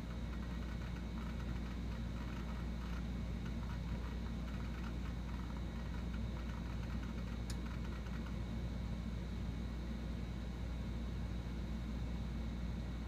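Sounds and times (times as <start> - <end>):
hard drive clicking: 0.0 - 8.4
low machine hum: 0.0 - 13.0.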